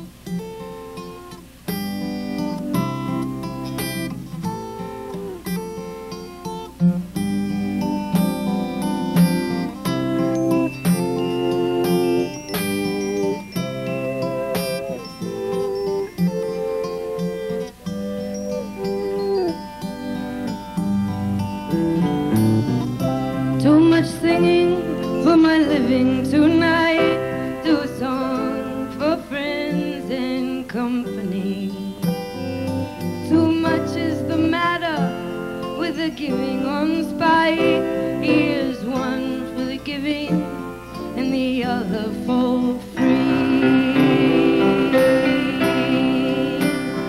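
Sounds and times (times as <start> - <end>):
acoustic guitar strumming: 0.0 - 47.0
woman singing: 11.6 - 13.5, 23.6 - 32.2, 33.0 - 47.0.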